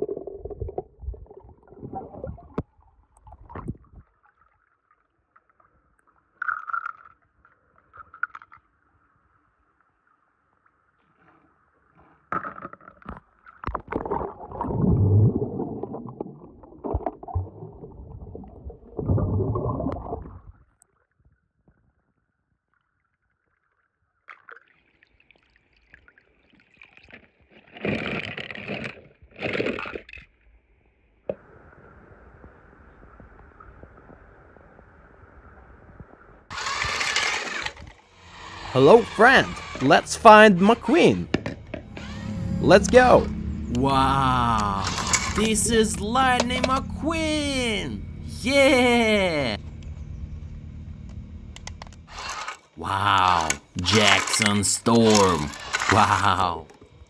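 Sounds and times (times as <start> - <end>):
water sloshing and gurgling: 11.1 - 20.7
faint high tone: 38.8 - 52.0.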